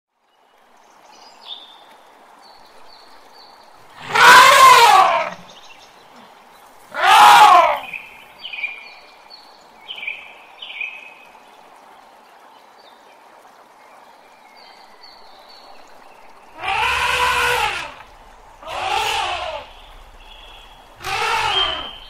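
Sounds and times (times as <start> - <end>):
elephant trumpeting: 4.0 - 5.5, 6.9 - 8.0, 16.5 - 22.0.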